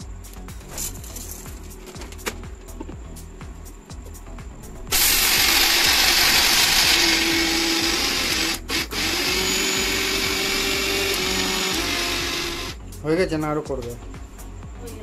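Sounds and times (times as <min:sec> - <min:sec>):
mixer grinder grinding kibble: 0:04.9 - 0:12.8.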